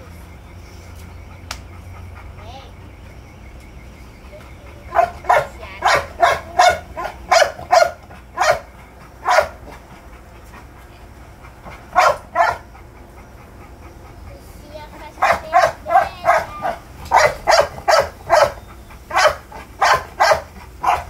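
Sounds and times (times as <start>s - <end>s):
dog barking: 4.8s - 9.8s, 11.8s - 12.8s, 15.1s - 21.0s.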